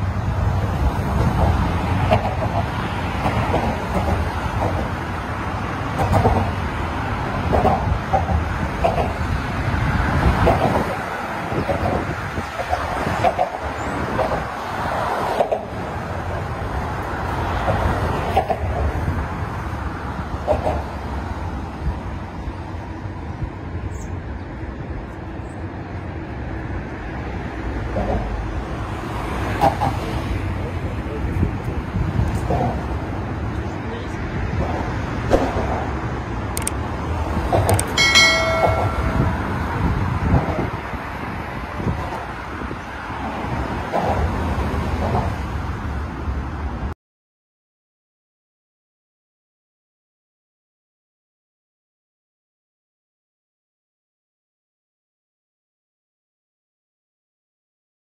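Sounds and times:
road traffic rumble: 0:00.0 - 0:47.0
bell-like notification ding: 0:38.0 - 0:39.9.

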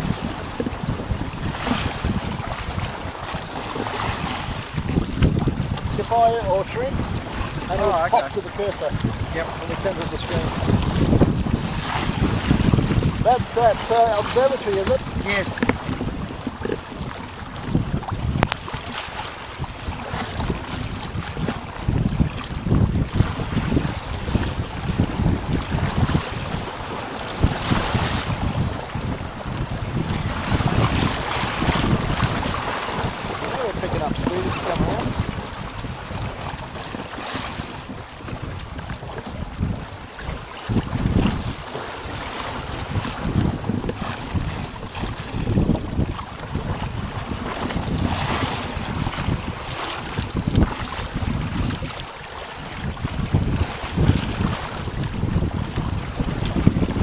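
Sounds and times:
water splashing along hulls: 0:00.0 - 0:57.0
wind buffeting microphone: 0:00.0 - 0:57.0.

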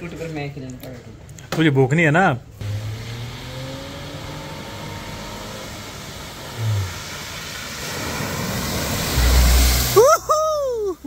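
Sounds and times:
car engine running: 0:02.6 - 0:10.0
hiss of water spray: 0:03.9 - 0:11.0.

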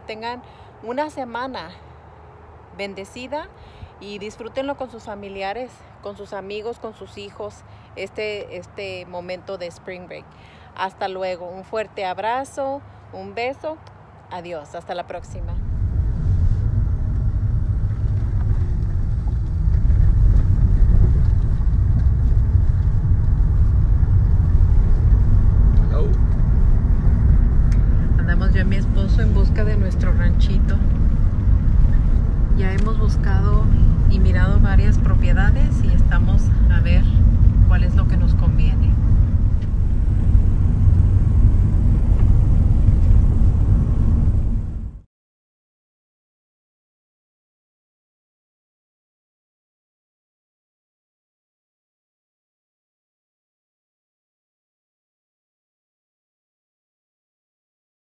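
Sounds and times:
road and engine rumble in car: 0:14.8 - 0:45.1.

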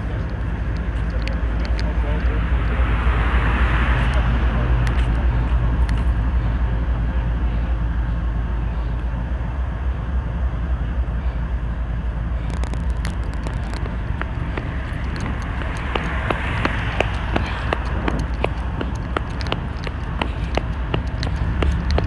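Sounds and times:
freight train diesel rumble: 0:00.0 - 0:22.0.

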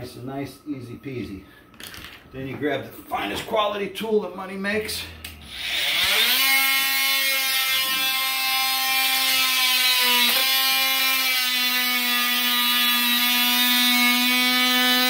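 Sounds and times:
oscillating multi-tool cutting vinyl: 0:05.3 - 0:15.0.

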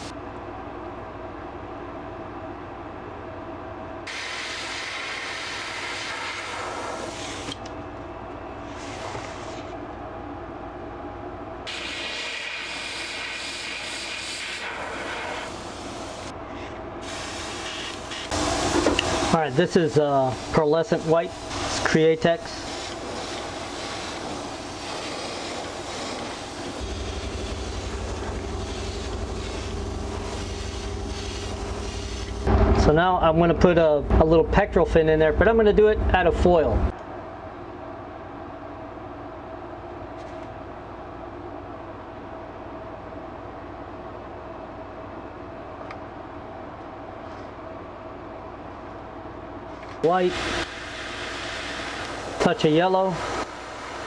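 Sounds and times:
steady low hum: 0:00.0 - 0:54.0
airbrush hissing: 0:04.1 - 0:07.6, 0:11.7 - 0:16.3, 0:17.0 - 0:21.9, 0:22.5 - 0:32.5, 0:50.3 - 0:52.4
low pulsing motor hum: 0:26.8 - 0:39.5.

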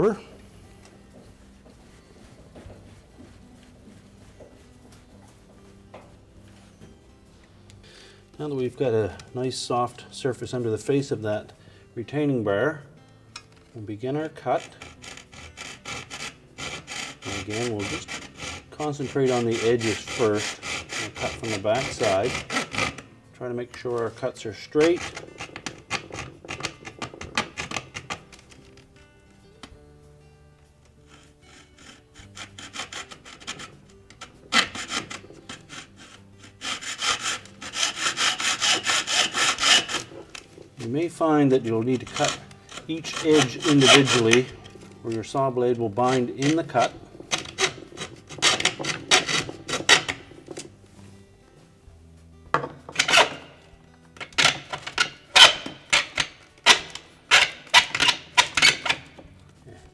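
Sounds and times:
hacksaw cutting: 0:14.3 - 0:23.1, 0:23.8 - 0:28.7, 0:31.0 - 0:50.7, 0:52.9 - 0:53.6, 0:54.2 - 0:59.2.

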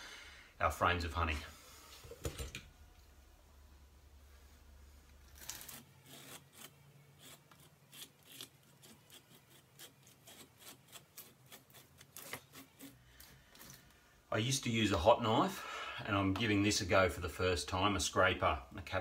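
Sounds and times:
scraper raking wax cappings: 0:05.3 - 0:13.8.

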